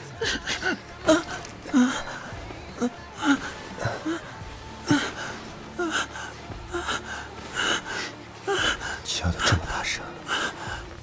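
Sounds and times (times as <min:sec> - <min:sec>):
man panting and moaning: 0:00.0 - 0:11.0.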